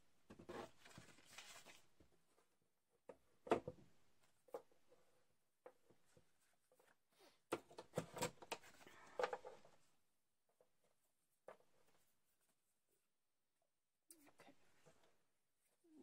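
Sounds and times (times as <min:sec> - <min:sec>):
card stock rustling: 0:00.6 - 0:01.9.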